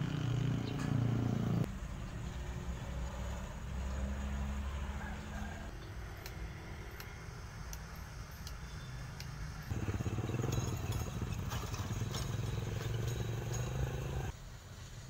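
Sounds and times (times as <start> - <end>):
motorcycle engine running: 0.0 - 1.7, 9.7 - 14.3.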